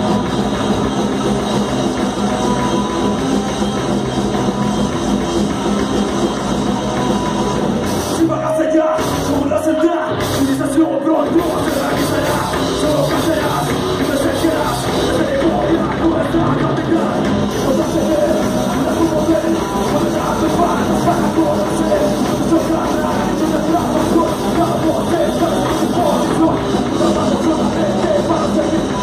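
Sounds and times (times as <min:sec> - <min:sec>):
bass guitar: 0:00.0 - 0:29.0
drum kit: 0:00.0 - 0:29.0
electric guitar: 0:00.0 - 0:29.0
man singing into microphone: 0:08.2 - 0:29.0.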